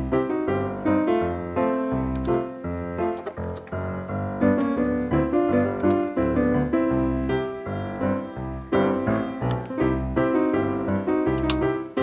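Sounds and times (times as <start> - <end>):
solo piano tune: 0.0 - 12.0.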